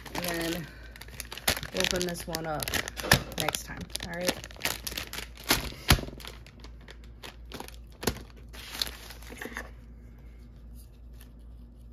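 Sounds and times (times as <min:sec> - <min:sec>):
plastic wrappers crinkling: 0:00.0 - 0:09.7.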